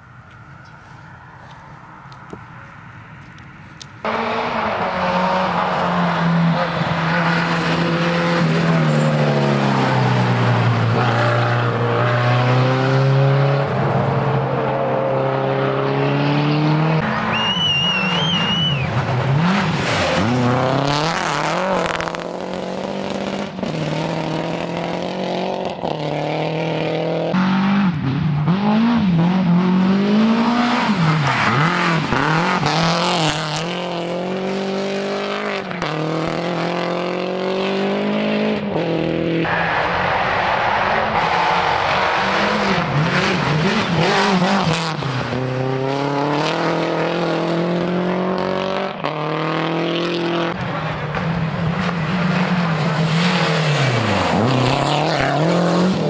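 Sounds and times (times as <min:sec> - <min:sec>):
rally car engines revving: 0:04.0 - 0:56.0
high wavering whistle: 0:17.3 - 0:18.9.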